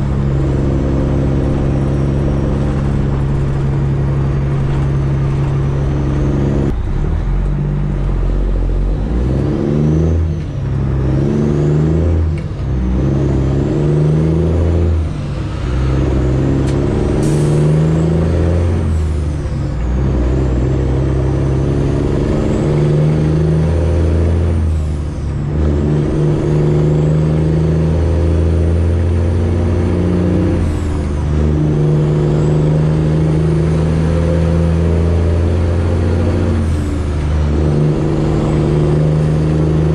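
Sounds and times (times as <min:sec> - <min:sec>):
diesel truck engine pulling: 0:00.0 - 0:39.9.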